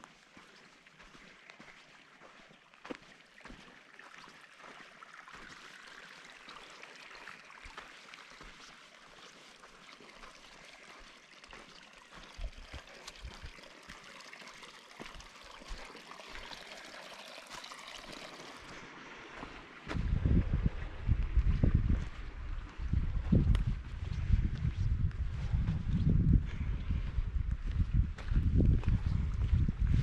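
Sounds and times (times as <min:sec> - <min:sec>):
creek trickling over rocks: 0:00.0 - 0:30.0
dull low thumps: 0:19.9 - 0:30.0.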